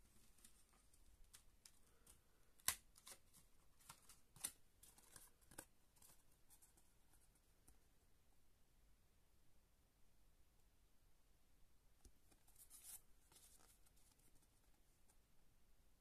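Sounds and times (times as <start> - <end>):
cards rustling: 0.2 - 7.4, 12.3 - 14.8.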